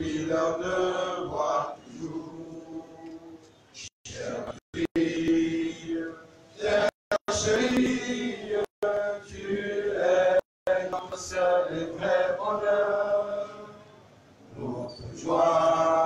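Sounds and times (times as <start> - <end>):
man singing into microphone: 4.1 - 13.7
men chanting together: 4.1 - 13.7, 14.6 - 16.0.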